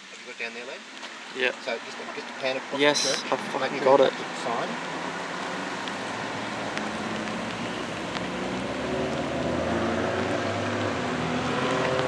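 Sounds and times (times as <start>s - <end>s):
tyre noise on wet road: 0.0s - 12.0s
vehicle engine driving off: 4.2s - 12.0s.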